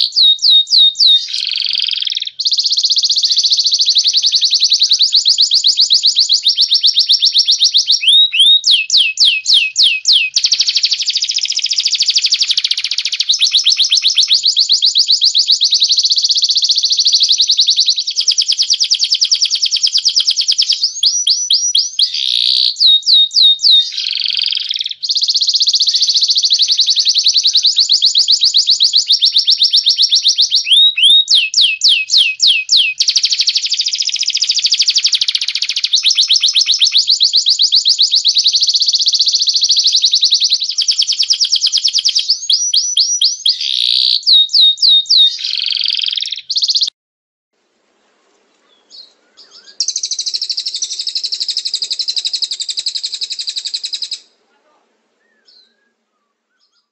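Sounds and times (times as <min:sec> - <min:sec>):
caged birds trilling: 0:00.0 - 0:46.9, 0:48.6 - 0:56.9.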